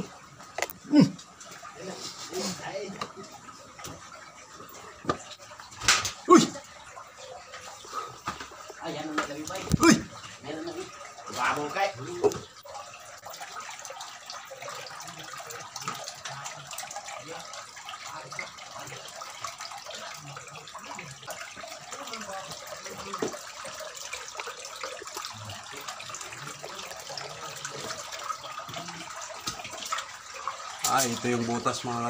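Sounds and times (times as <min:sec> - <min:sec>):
water running and trickling: 0:00.0 - 0:32.0.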